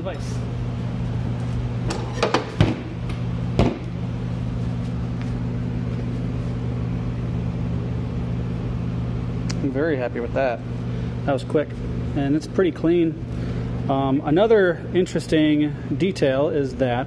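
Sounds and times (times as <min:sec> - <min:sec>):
electric heater hum: 0:00.0 - 0:17.0.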